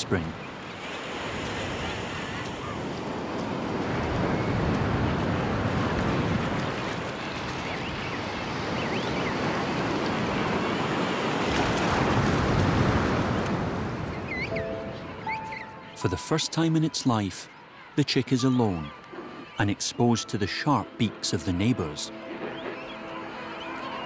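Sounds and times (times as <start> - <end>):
ocean surf breaking on beach: 0.0 - 15.3.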